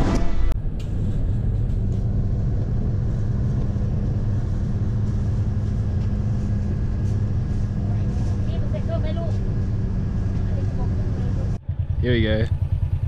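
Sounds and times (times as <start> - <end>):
road noise: 0.0 - 13.0
vehicle engine hum: 0.0 - 13.0.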